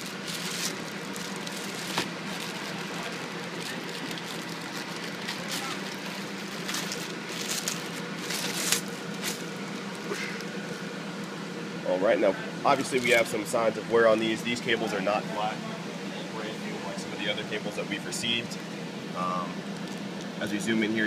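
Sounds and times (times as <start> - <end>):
plastic bag crinkling: 0.0 - 10.1
steady low hum: 0.0 - 21.0.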